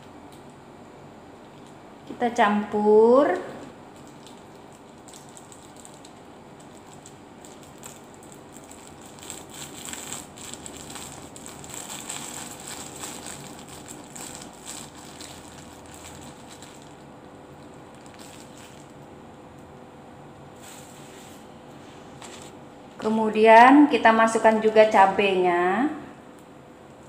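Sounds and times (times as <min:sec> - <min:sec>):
plastic bag crinkling: 0:03.6 - 0:19.2.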